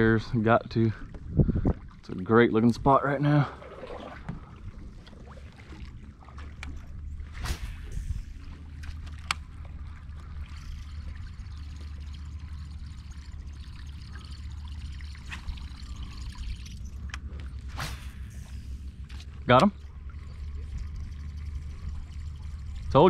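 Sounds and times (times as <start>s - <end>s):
wind rumble on microphone: 0.0s - 3.0s, 4.0s - 13.0s
water lapping around kayak: 0.0s - 23.0s.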